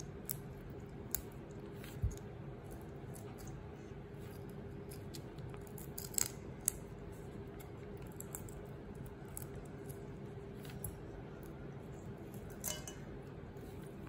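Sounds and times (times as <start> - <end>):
faint hum: 0.0 - 14.0
shrimp shells snapping: 4.9 - 6.8.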